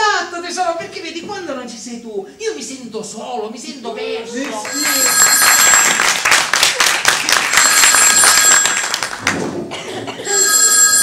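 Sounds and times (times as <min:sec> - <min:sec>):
audience applause: 0:04.4 - 0:09.6
telephone bell ringing: 0:04.6 - 0:06.4, 0:07.3 - 0:09.2, 0:10.2 - 0:11.0.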